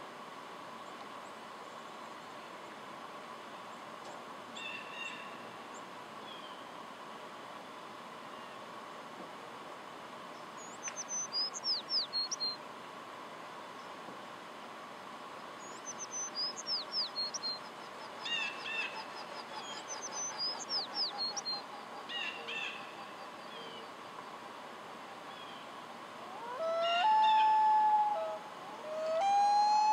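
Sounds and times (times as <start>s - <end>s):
sparrow singing: 10.6s - 12.6s, 15.6s - 17.6s, 19.6s - 21.6s.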